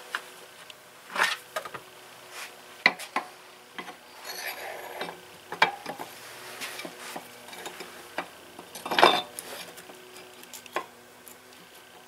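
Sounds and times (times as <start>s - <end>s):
metal tools clinking: 4.1s - 6.0s, 8.6s - 9.6s
scraping rub: 4.2s - 5.1s.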